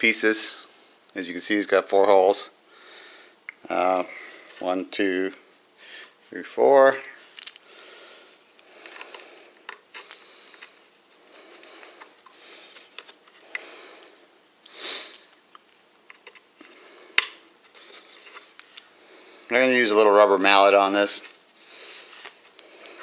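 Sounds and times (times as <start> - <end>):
breathing through the nose: 2.7 - 3.4, 7.7 - 15.3.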